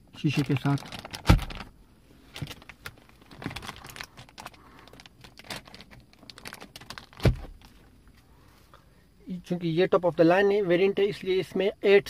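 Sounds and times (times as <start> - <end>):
plastic film crinkling: 0.3 - 1.7, 2.3 - 7.8.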